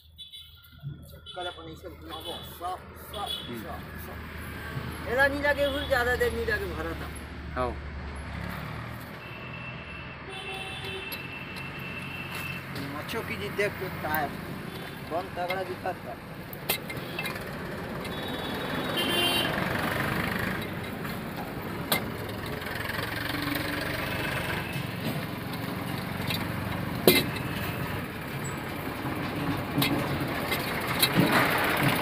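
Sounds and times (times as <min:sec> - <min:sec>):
engine running: 0:19.0 - 0:32.0.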